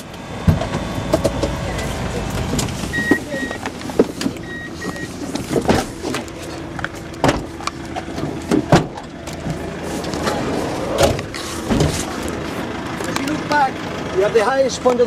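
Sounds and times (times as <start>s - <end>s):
knocks of people leaving a vehicle: 0.0s - 13.4s
short high beeps: 2.9s - 3.6s, 4.4s - 5.1s.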